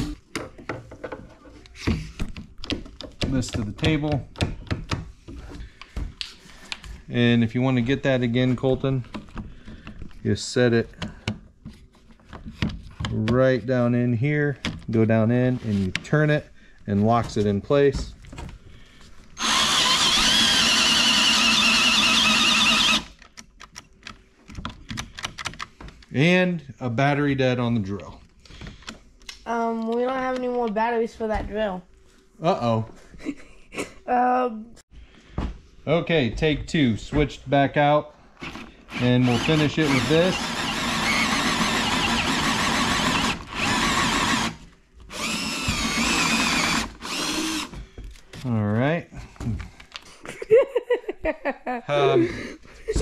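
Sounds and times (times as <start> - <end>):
cordless drill boring wood: 19.4 - 23.2, 38.4 - 47.8.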